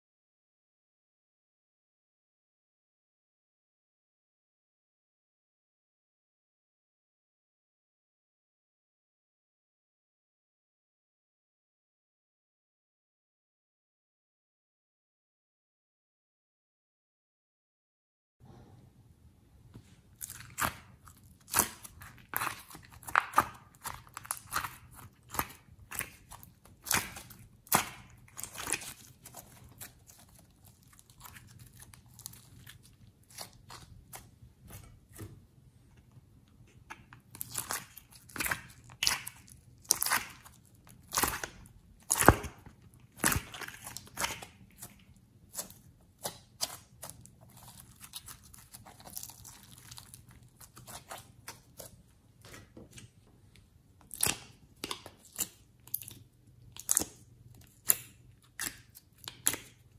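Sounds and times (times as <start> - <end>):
slime sticky clicks and crackles: 54.1 - 59.8.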